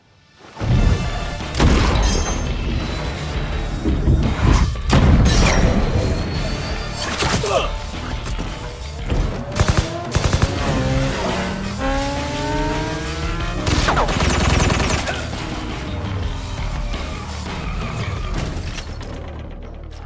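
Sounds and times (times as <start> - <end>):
film music score: 0.0 - 20.0
vehicles rushing past: 9.0 - 14.1
gunshots: 9.4 - 11.0, 13.6 - 15.4.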